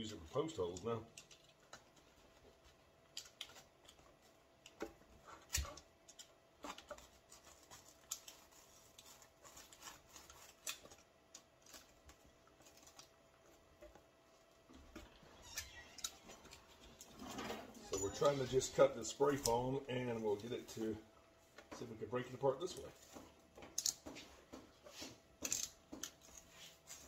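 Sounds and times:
hand tool scraping foam: 6.6 - 10.9.

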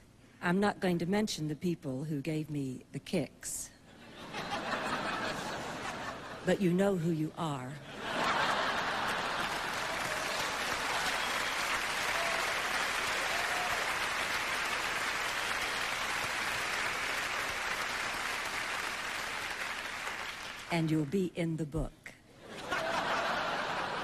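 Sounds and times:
audience applauding: 8.2 - 20.7.

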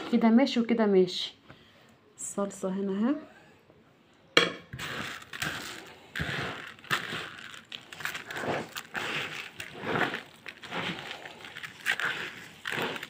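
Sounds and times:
hand mixing rice in a bowl: 4.7 - 13.0.

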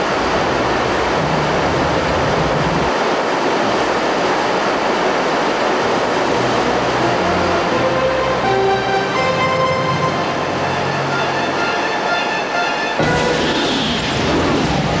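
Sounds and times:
waterfall and rushing stream: 0.0 - 15.0.

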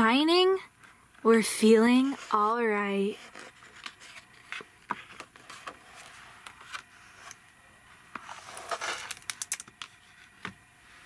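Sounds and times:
paper pages rustling: 3.2 - 7.4, 8.2 - 10.4.

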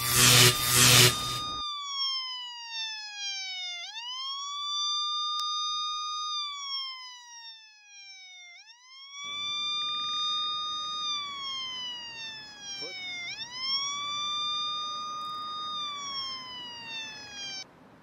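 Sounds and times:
taser electric buzz: 0.0 - 1.6, 9.2 - 17.4
police siren wailing: 0.0 - 17.7.

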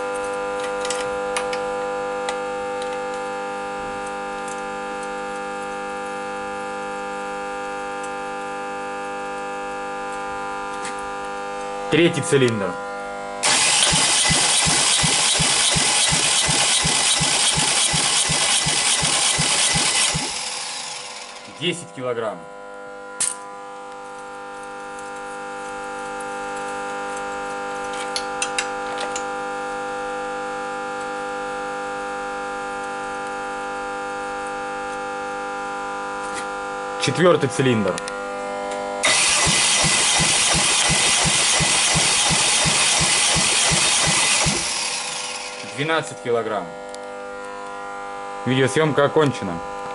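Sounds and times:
engine turning over on starter: 13.4 - 21.7, 39.0 - 45.9.

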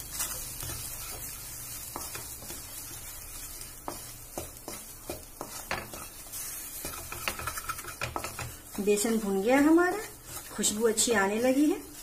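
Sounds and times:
flour sizzling in ghee: 0.0 - 12.0
wooden spatula scraping pan: 0.0 - 12.0
spatula knocking against pan: 3.9 - 6.0, 6.8 - 8.6.

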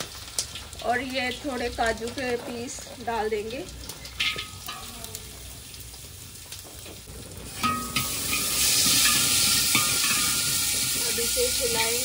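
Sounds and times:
food sizzling in hot oil: 0.0 - 12.0.

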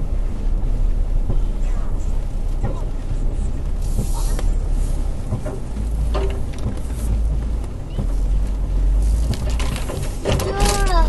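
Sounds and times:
off-road vehicle engine running: 0.0 - 11.0
branches scraping vehicle body: 3.8 - 11.0
knocks and clicks: 5.2 - 11.0.

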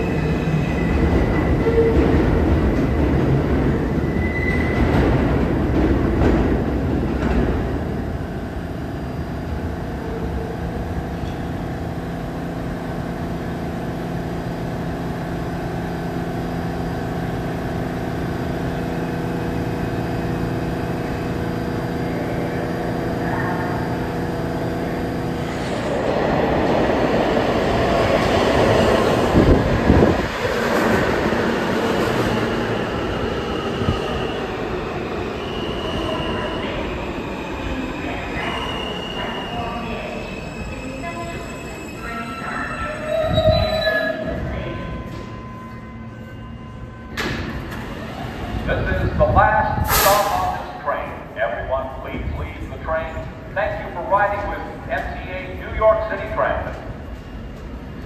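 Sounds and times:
subway train hum: 0.0 - 58.0
high-pitched wheel squeal: 4.0 - 4.9, 38.8 - 44.3.

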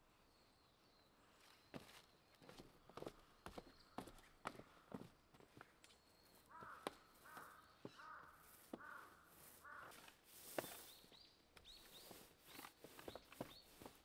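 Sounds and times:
small bird chirping: 5.8 - 14.0
bird calling: 6.2 - 14.0.

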